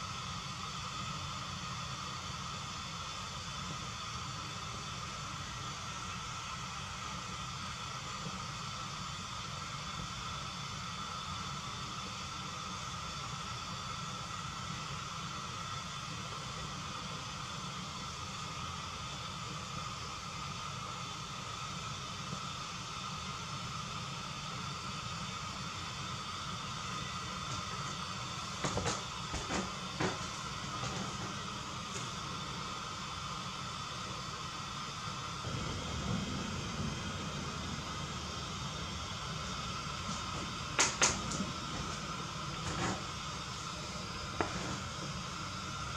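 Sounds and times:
gas burner hissing: 0.0 - 45.9.

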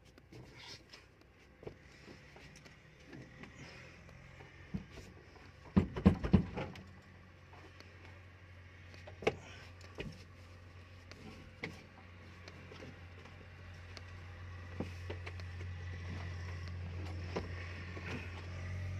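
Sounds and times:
steady low hum: 0.0 - 18.9
loud knocks and clatters: 5.7 - 6.8.

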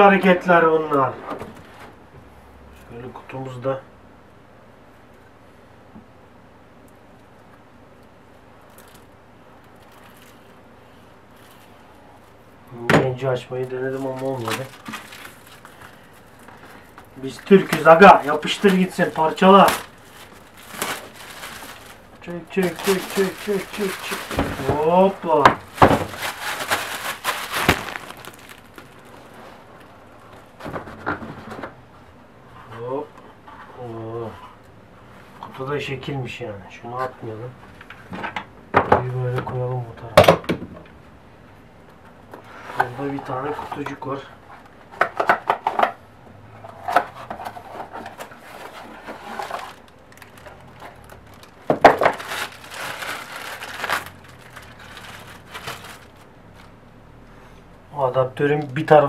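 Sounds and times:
plastic wrapping crinkling: 8.6 - 10.6, 13.6 - 30.0, 47.5 - 56.7.

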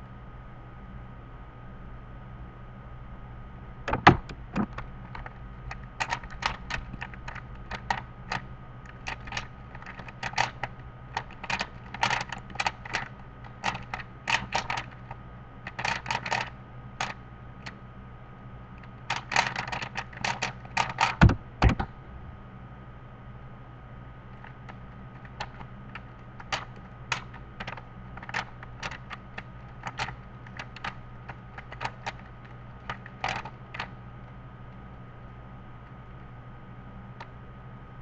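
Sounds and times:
sharp knock: 3.9 - 4.4, 21.2 - 21.9
cube thumping on wooden table: 3.9 - 5.2, 21.0 - 21.9
puzzle cube plastic clicking: 3.9 - 17.8, 18.8 - 21.9, 24.4 - 34.0.

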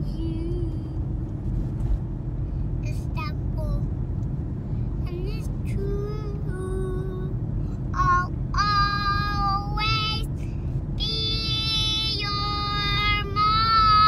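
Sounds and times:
car cabin rumble: 0.0 - 14.0.

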